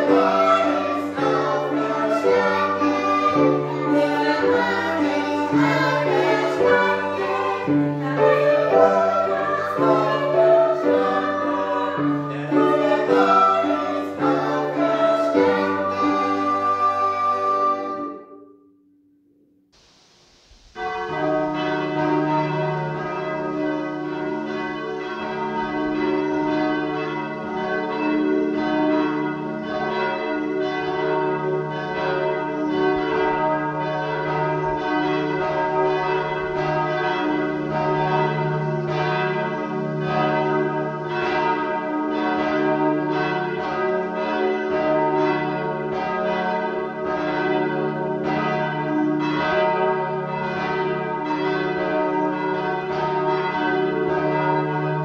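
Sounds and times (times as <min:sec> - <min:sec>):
church bells pealing: 0:00.0 - 0:18.6, 0:20.8 - 0:55.0
hum of deep bells: 0:21.1 - 0:55.0.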